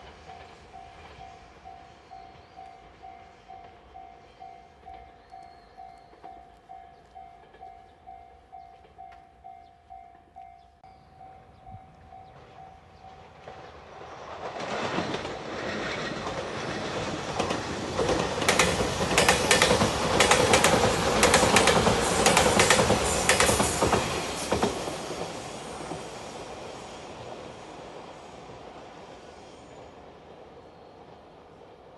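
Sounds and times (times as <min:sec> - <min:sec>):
train rumble: 0:00.0 - 0:31.9
wheels clicking over rail joints: 0:12.2 - 0:25.3.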